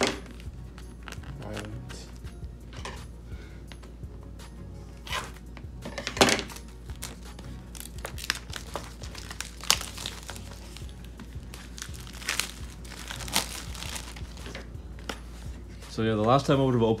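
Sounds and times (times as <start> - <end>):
plastic wrap crinkling and tearing: 6.9 - 14.7.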